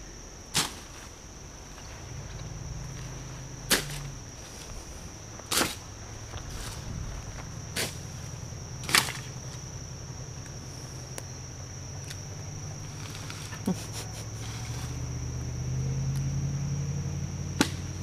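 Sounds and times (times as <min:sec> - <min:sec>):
high-pitched insect drone: 0:00.0 - 0:18.0
low hum: 0:00.0 - 0:18.0
hand tool chopping brush: 0:03.7 - 0:04.1, 0:05.5 - 0:05.8, 0:08.8 - 0:09.3.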